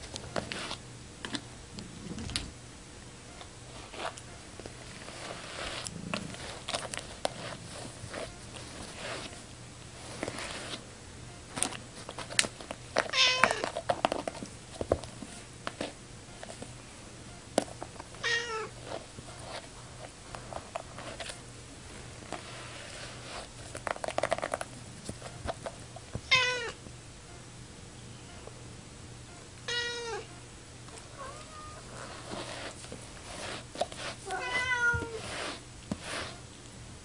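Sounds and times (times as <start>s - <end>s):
cat meowing: 26.3s - 26.8s, 29.7s - 30.3s, 31.1s - 31.9s, 34.3s - 35.2s.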